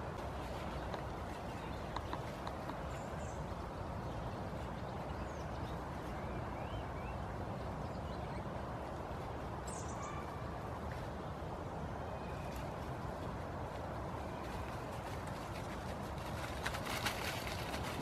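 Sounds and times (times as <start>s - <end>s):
rushing outdoor background noise: 0.0s - 18.0s.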